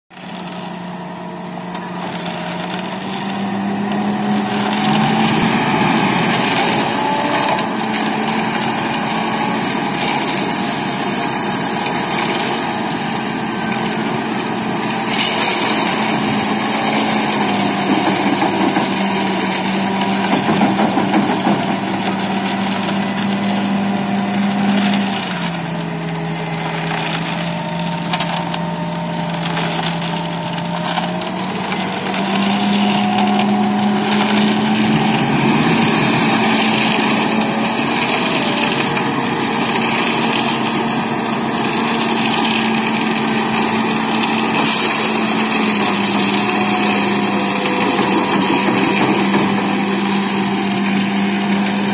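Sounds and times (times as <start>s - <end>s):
diesel engine running: 0.1s - 51.9s
gravel grating under bucket: 0.1s - 51.9s.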